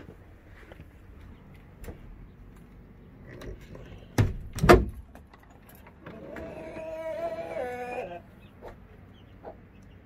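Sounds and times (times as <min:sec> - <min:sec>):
door rattling knocks: 0:04.2 - 0:05.1.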